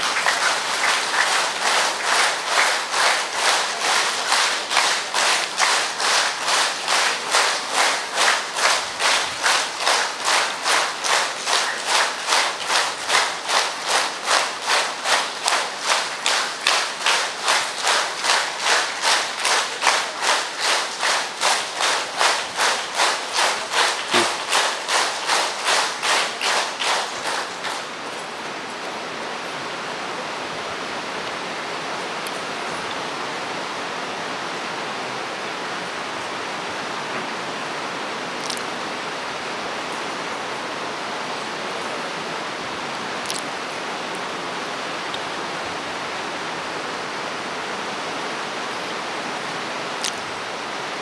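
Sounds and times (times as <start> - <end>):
crowd clapping in unison: 0.0 - 28.6, 38.4 - 38.8, 43.2 - 43.5, 49.4 - 50.4.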